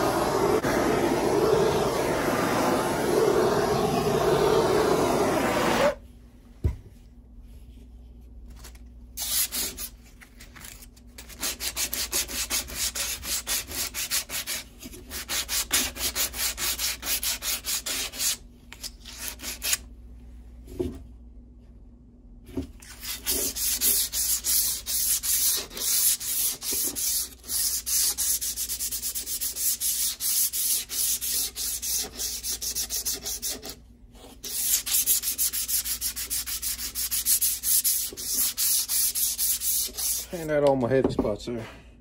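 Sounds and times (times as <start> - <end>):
gas torch flame burning: 0.0 - 6.0
sandpaper rubbing wood: 11.3 - 18.4, 22.9 - 33.8, 34.4 - 40.3.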